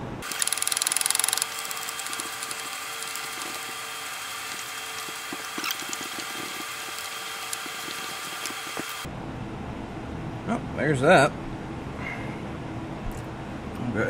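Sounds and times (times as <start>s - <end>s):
steady hum: 0.0s - 14.0s
ratchet wrench clicking: 0.2s - 9.1s.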